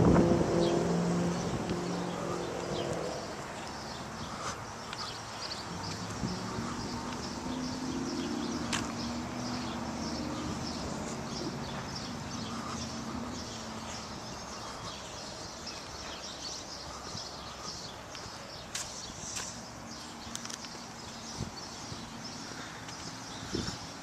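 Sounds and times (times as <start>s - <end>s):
low engine-like hum: 0.0s - 18.1s
small birds chirping: 0.5s - 24.0s.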